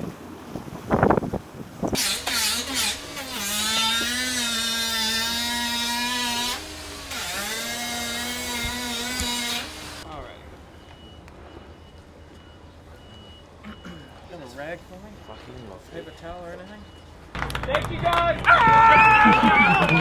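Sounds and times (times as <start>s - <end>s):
power tool whining: 1.9s - 10.0s.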